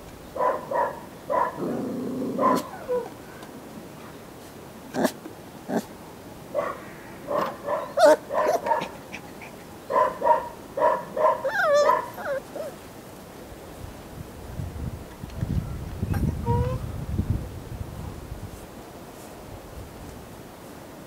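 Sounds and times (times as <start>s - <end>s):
puppy yipping and whining: 2.4s - 3.2s, 7.7s - 12.8s, 16.1s - 16.8s.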